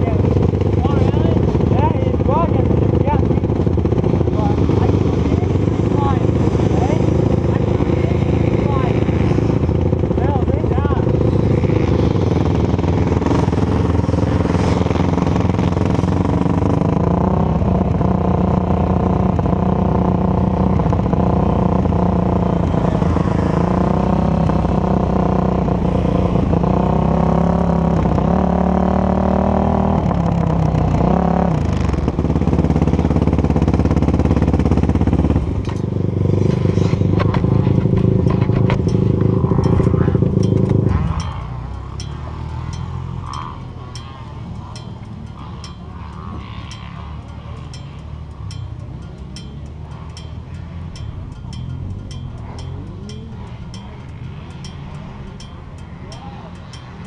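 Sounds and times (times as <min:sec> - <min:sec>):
atv engine running: 0:00.0 - 0:57.0.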